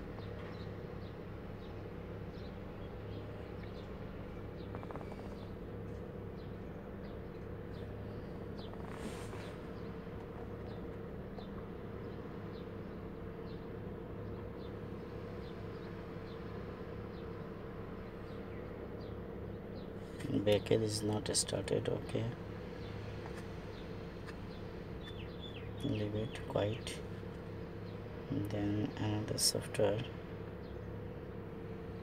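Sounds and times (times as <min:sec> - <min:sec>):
car engine idling: 0:00.0 - 0:32.0.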